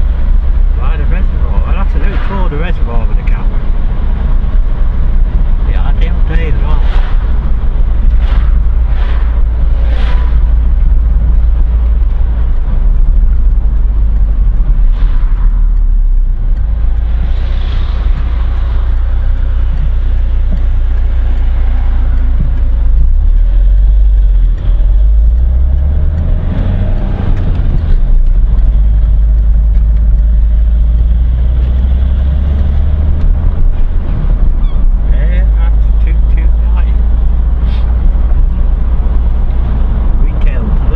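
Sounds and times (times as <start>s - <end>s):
car engine and road noise: 0.0s - 40.9s.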